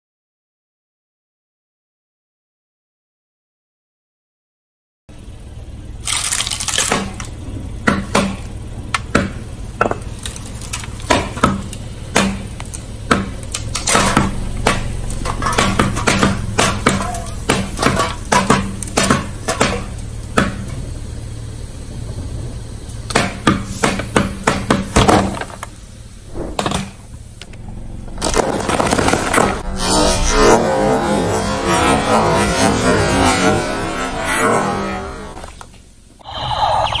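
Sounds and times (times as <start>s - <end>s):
steady low hum: 5.1s - 37.0s
drink cans crunching and popping: 6.0s - 7.4s, 10.1s - 11.8s, 28.2s - 29.6s.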